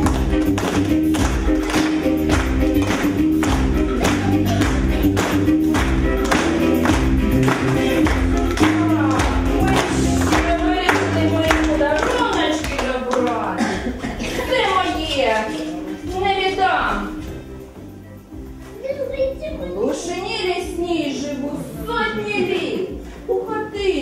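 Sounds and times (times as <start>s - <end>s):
dance music with steady beat: 0.0s - 12.3s.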